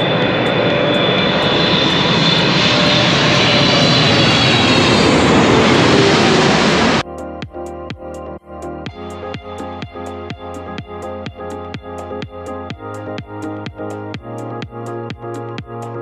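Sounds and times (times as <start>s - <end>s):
jet airliner roaring past: 0.0s - 7.0s.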